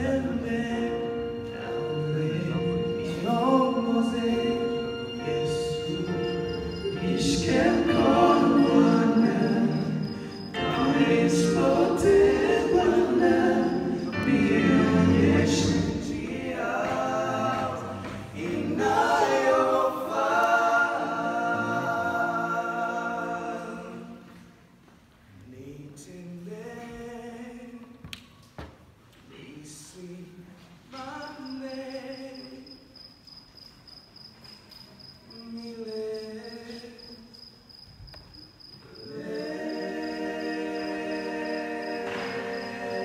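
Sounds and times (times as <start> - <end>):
male a cappella group singing: 0.0 - 24.6, 29.3 - 32.6, 35.3 - 37.3, 38.8 - 43.0.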